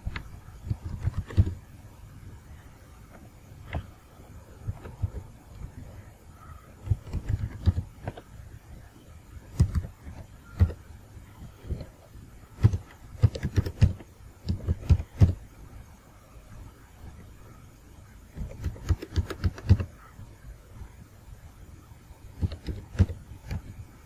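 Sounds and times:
keyboard typing: 0.0s - 1.6s, 4.6s - 5.7s, 6.8s - 8.3s, 9.5s - 10.9s, 12.5s - 15.5s, 18.3s - 20.0s, 22.3s - 23.7s.

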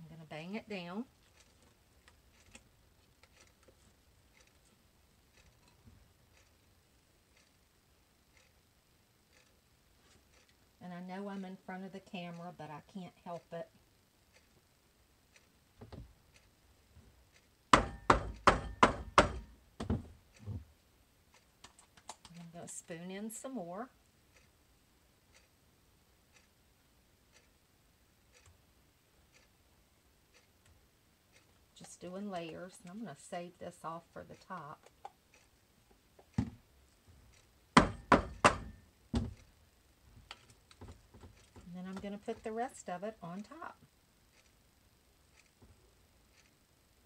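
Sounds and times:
soap mold banging on table: 17.8s - 20.0s, 37.8s - 39.4s.

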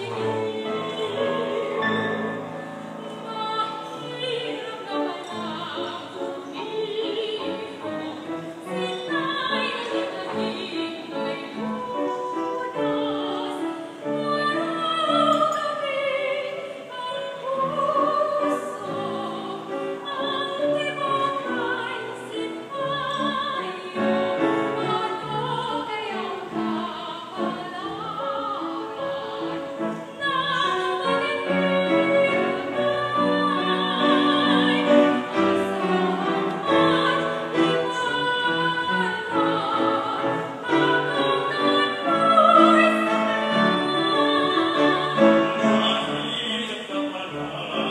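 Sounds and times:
piano accompaniment: 0.0s - 47.9s
soprano singing with vibrato: 0.0s - 47.9s
male voices singing: 45.4s - 47.9s.

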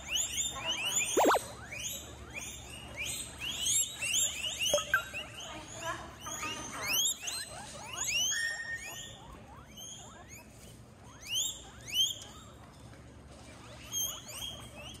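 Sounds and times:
guinea pig wheeking: 0.0s - 15.0s.

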